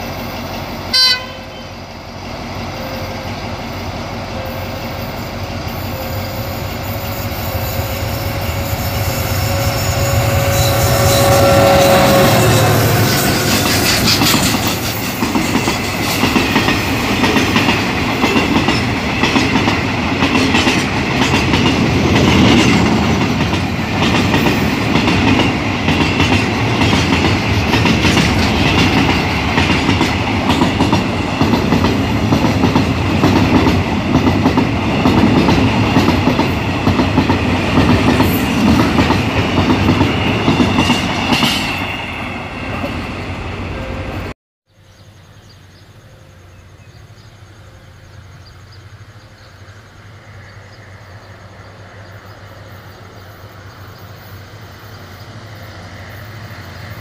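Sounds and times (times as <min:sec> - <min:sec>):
high wheel squeal: 0:02.6 - 0:16.2
train wheels clicking over rail joints: 0:06.6 - 0:42.1.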